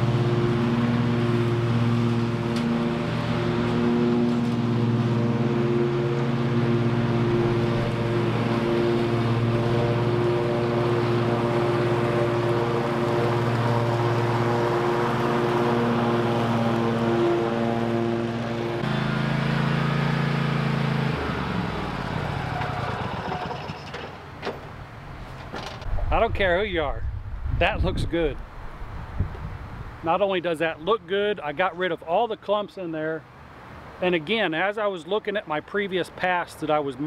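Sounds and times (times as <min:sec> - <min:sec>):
ride-on mower engine running: 0:00.0 - 0:25.9.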